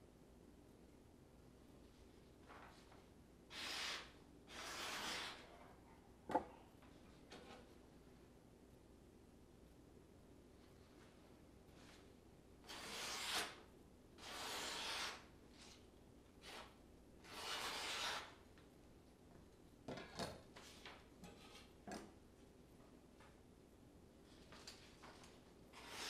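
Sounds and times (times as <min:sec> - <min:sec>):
paper rustling: 0:02.4 - 0:03.0
knife slicing through paper: 0:03.5 - 0:05.4, 0:14.2 - 0:15.8, 0:16.4 - 0:18.3, 0:25.7 - 0:26.0.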